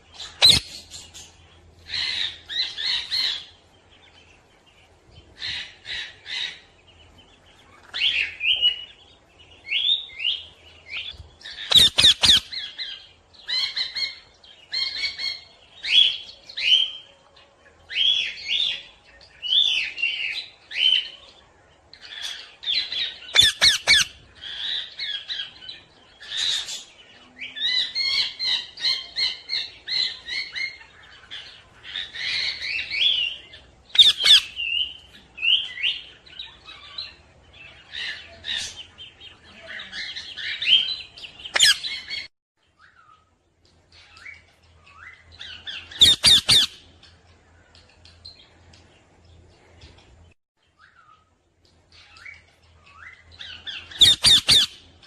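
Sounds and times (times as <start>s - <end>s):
parrot squawks and chirps: 0.2s - 1.2s, 11.4s - 15.4s, 22.1s - 25.4s, 31.8s - 34.8s, 40.0s - 43.3s, 44.0s - 46.8s, 52.0s - 54.8s
loud harsh parrot squawks: 0.4s - 0.7s, 11.7s - 12.5s, 23.3s - 24.1s, 34.0s - 34.5s, 46.0s - 46.7s, 53.9s - 54.8s.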